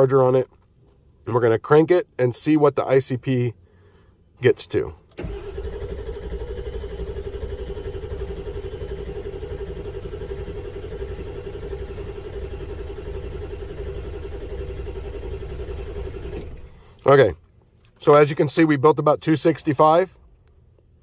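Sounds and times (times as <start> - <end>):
diesel engine cranking: 4.8 - 17.0
starter motor whine: 5.1 - 16.9.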